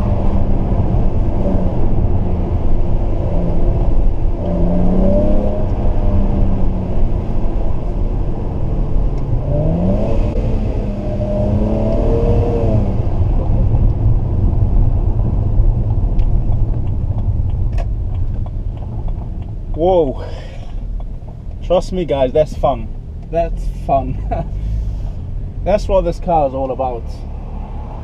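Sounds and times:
car engine rumbling and revving: 0.0 - 28.0.

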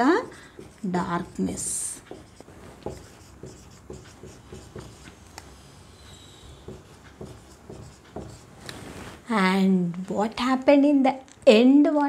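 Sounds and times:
marker writing on whiteboard: 0.0 - 9.1
marker squeak: 5.9 - 6.8.

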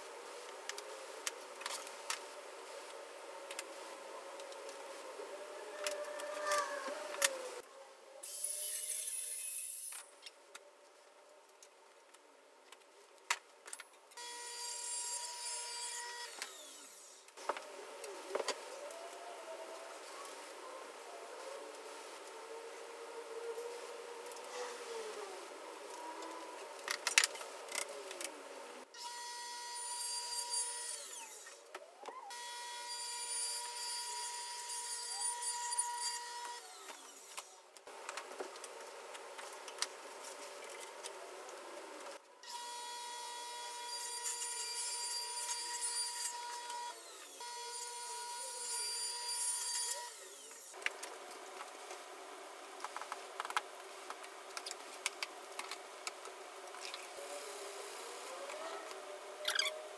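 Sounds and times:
table saw cutting: 14.2 - 17.2, 29.0 - 31.6, 42.5 - 50.8.

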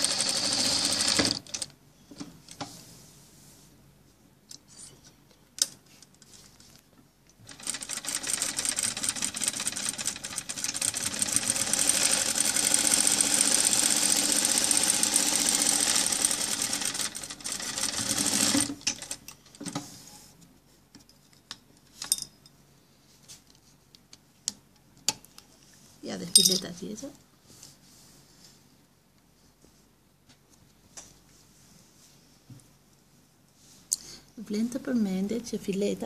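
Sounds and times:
sewing machine stitching: 0.0 - 1.7, 7.5 - 19.2.

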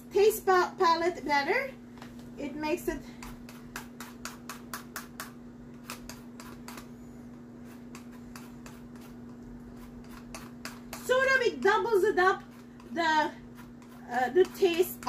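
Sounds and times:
zester scraping lemon: 3.1 - 7.0, 7.6 - 15.0.

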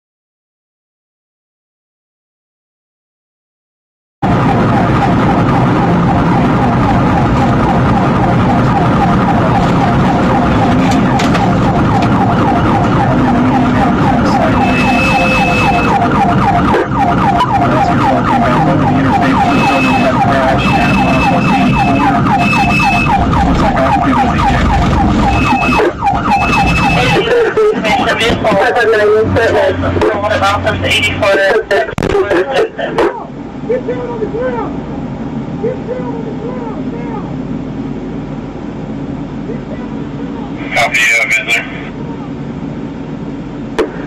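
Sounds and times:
police siren yelp: 4.2 - 31.6
car driving at speed: 4.2 - 33.8.

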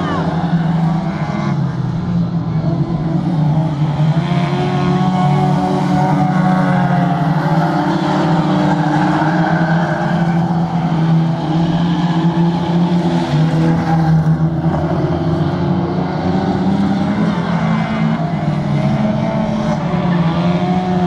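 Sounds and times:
racing car engines droning: 0.0 - 21.0.

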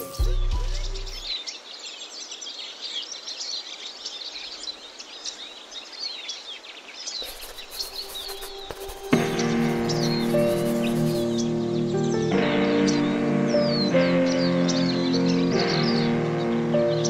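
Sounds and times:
birds chirping and singing: 0.0 - 17.0
background hiss: 1.3 - 12.1.

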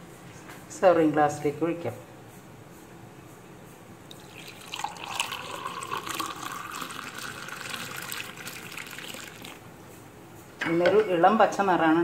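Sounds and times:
thick juice pouring into a mug: 4.1 - 9.6.

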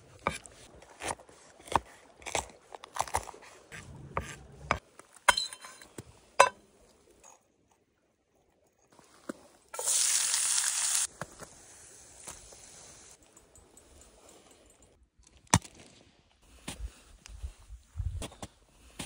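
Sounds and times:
peppers sizzling in hot fat: 9.8 - 13.2.

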